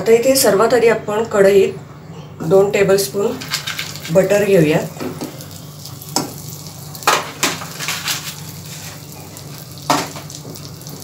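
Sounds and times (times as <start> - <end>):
butter sizzling faintly: 3.2 - 11.0.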